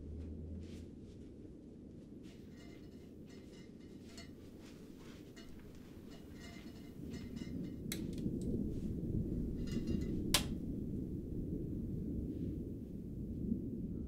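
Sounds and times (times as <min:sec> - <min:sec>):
low steady rumble: 0:00.0 - 0:14.0
faint rustling: 0:00.1 - 0:10.6
sharp clicks of glass lamp: 0:09.7 - 0:10.6.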